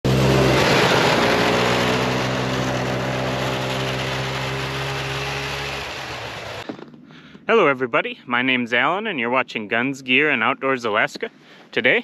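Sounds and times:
snowmobile engine running: 0:00.0 - 0:07.0.

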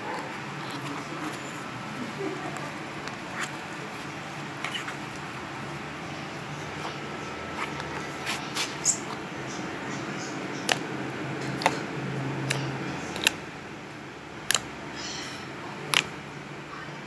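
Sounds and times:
low steady hum: 0:00.0 - 0:17.0
slime clicking and popping: 0:11.6 - 0:11.8, 0:13.2 - 0:13.4, 0:14.4 - 0:14.7.

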